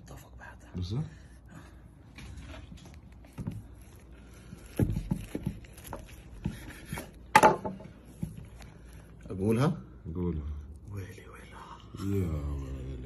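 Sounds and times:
knife cutting through burger: 2.3s - 9.0s.

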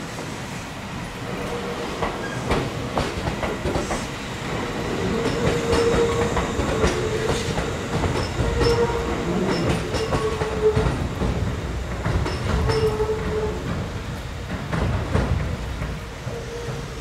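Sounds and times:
electric train whine: 0.0s - 17.0s
train wheels clacking on rails: 1.1s - 17.0s.

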